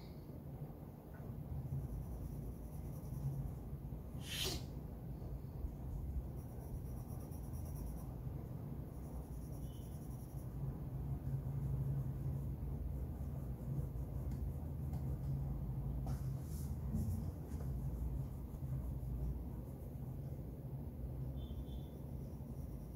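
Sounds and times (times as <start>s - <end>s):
pencil scratching on paper: 1.6s - 3.8s, 5.7s - 15.6s, 16.4s - 20.6s
brief sharp hiss: 4.2s - 4.7s.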